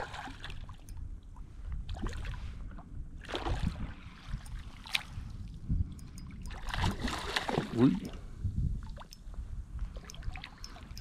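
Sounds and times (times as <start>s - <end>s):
sea water splashing: 0.0s - 0.9s, 6.2s - 8.2s
wind rumble on microphone: 0.0s - 11.0s.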